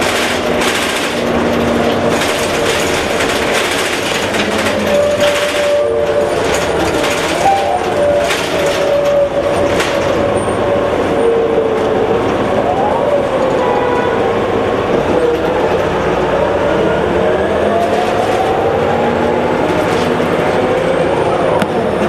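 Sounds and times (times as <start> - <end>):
bus body clattering: 0.0 - 12.6, 17.6 - 22.0
bus transmission whining: 0.0 - 22.0
diesel engine drone: 0.0 - 22.0.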